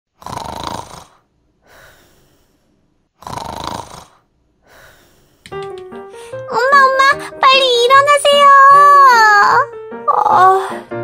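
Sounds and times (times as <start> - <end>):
person snoring: 0.2 - 5.5
soft breath out: 1.1 - 2.9, 4.1 - 5.5
music: 5.5 - 11.0.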